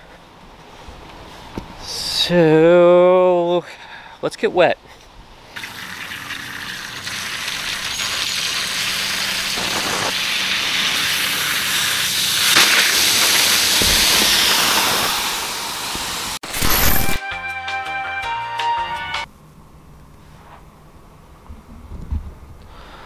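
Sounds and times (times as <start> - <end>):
water spraying and hissing: 5.6 - 17.1.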